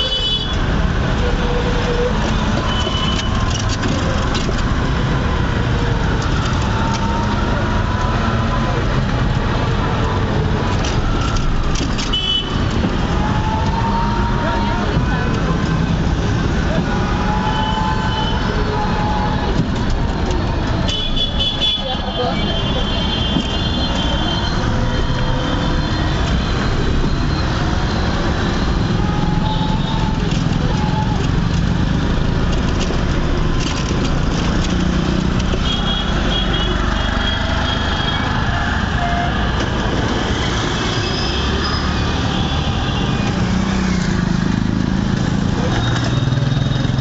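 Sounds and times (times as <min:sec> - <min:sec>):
car horn: 0:12.0 - 0:12.6
car and motorcycle engines: 0:24.0 - 0:47.0.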